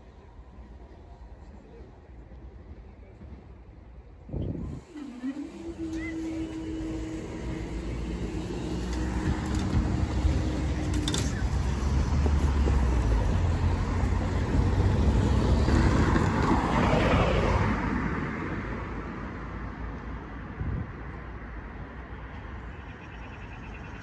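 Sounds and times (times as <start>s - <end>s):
road traffic rumbling: 4.4s - 24.0s
barrier mechanism humming: 4.7s - 12.1s.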